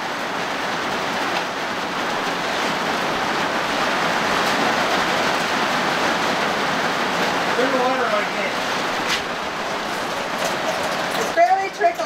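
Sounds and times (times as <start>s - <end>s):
heavy rain on steel roof: 0.0s - 12.0s.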